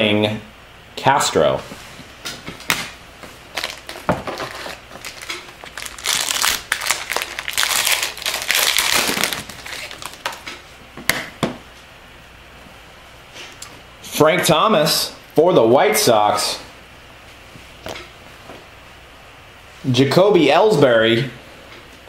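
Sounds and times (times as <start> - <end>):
card packaging crinkling: 3.5 - 10.6.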